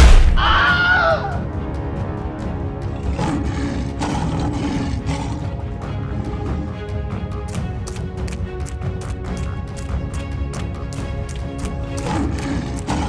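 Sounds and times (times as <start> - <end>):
music with steady beat: 6.7 - 13.0.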